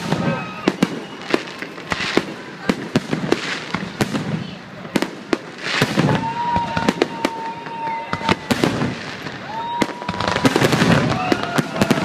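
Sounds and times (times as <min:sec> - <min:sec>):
fireworks bangs and crackles: 0:00.0 - 0:12.0
high whistle: 0:00.2 - 0:01.4.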